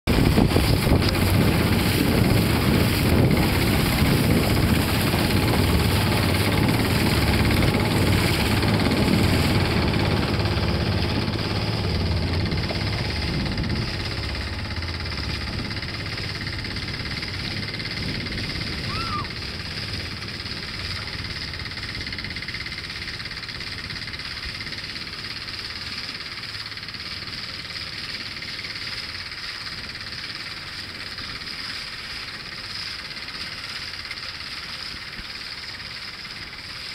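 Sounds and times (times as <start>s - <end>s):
rushing wind: 0.1s - 22.8s
boat engine rumble: 0.1s - 36.9s
water noise: 0.1s - 36.9s.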